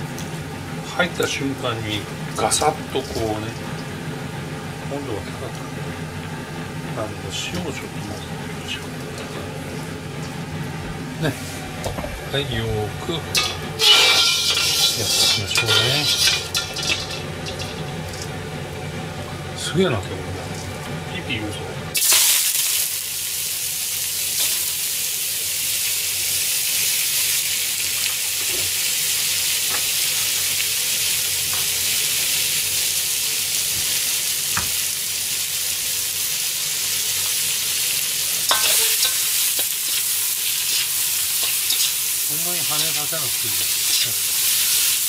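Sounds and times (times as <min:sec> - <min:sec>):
vegetables sizzling in a wok: 0:13.0 - 0:19.4, 0:21.9 - 0:45.0
ladle stirring in a wok: 0:13.3 - 0:18.3, 0:38.4 - 0:45.0.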